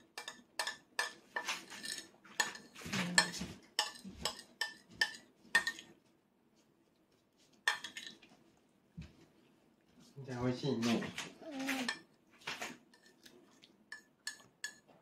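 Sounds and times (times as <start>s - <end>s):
cutlery clinking on dishes: 0.0s - 5.9s, 7.7s - 8.2s, 13.9s - 15.0s.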